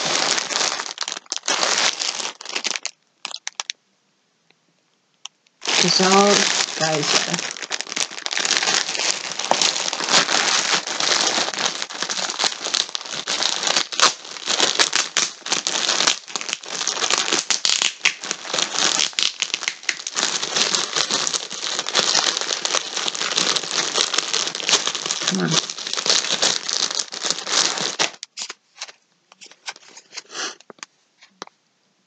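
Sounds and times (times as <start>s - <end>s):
plastic packaging crinkling: 0.0s - 3.8s, 5.6s - 30.9s.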